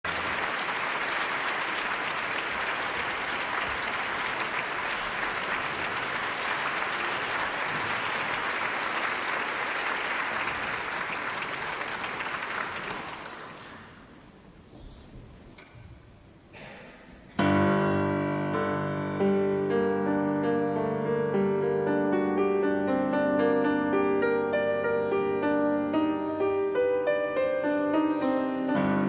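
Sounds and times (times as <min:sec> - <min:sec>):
audience applauding: 0:00.0 - 0:14.1.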